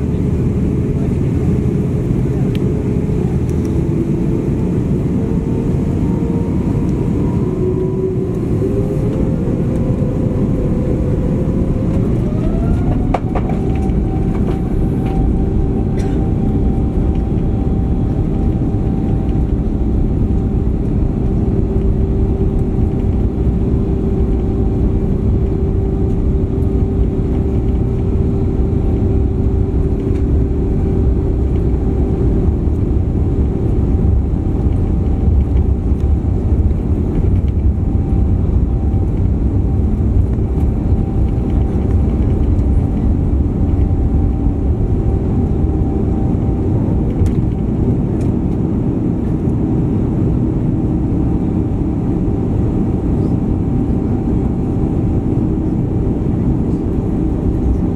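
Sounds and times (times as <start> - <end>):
jet engines and runway rumble: 0.0 - 57.9
steady cabin hum: 0.0 - 57.9.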